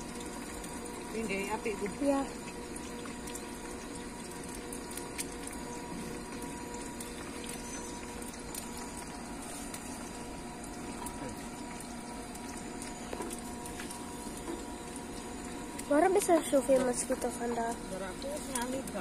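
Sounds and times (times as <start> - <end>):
food frying in oil: 0.0 - 19.0.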